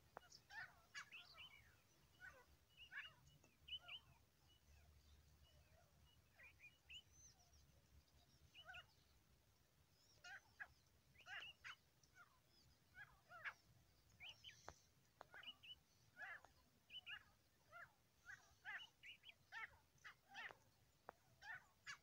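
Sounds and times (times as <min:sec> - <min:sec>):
francolin calling: 0:10.1 - 0:20.6.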